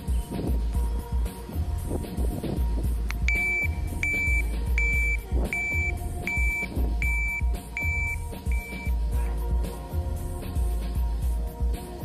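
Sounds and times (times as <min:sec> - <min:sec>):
music with heavy beat: 0:00.0 - 0:12.0
traffic light high beeps: 0:03.3 - 0:09.0.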